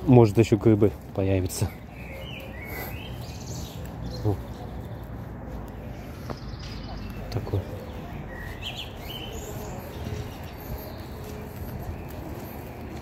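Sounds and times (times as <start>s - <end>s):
outdoor background noise: 0.0s - 13.0s
songbirds chirping: 0.0s - 13.0s.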